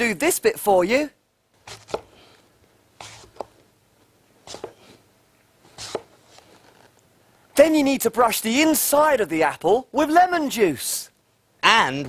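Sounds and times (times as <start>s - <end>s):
apple corer cutting apple: 1.6s - 2.2s, 3.0s - 3.6s, 4.4s - 5.0s, 5.7s - 6.9s.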